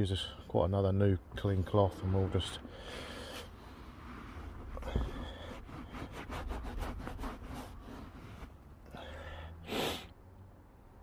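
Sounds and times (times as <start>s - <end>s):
cloth rubbing on leather seat: 3.3s - 8.6s
short sharp breath: 8.9s - 10.2s.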